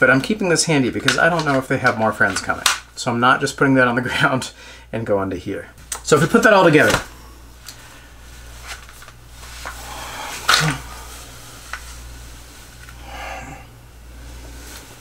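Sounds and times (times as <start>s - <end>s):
low electrical hum: 0.0s - 15.0s
clothing rustle: 6.2s - 13.4s, 14.1s - 15.0s.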